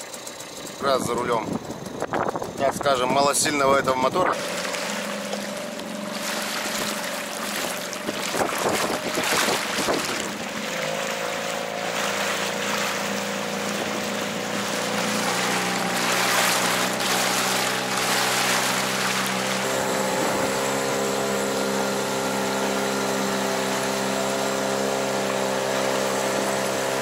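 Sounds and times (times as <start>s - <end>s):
outboard motor running: 0.0s - 27.0s
wind on microphone: 1.0s - 4.4s, 7.6s - 10.6s, 19.6s - 21.0s
water rushing past: 4.1s - 27.0s.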